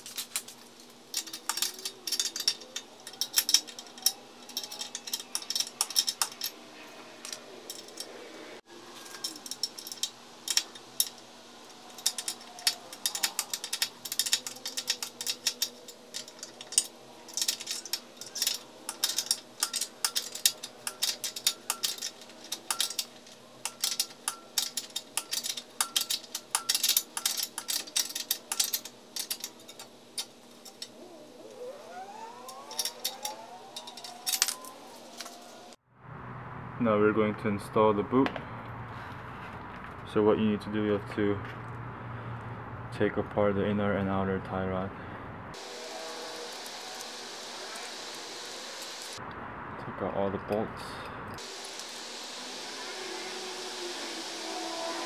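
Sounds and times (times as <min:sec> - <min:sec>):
wrench metal clicks: 0:00.0 - 0:06.6, 0:09.0 - 0:31.0, 0:32.4 - 0:35.4.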